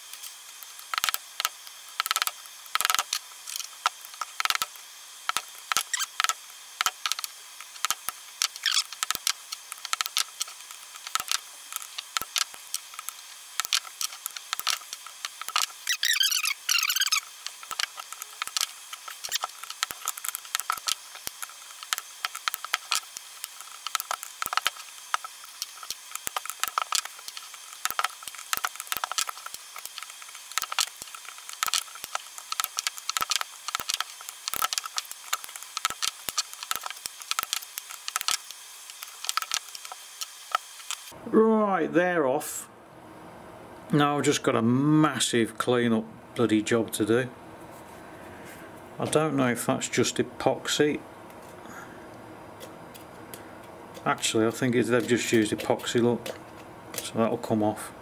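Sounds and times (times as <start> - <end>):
squealing metal scrape: 15.6 - 17.3.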